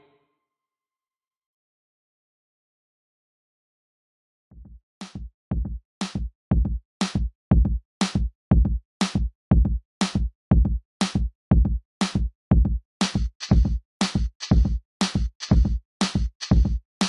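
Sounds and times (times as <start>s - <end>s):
drum machine beat: 4.6s - 16.8s.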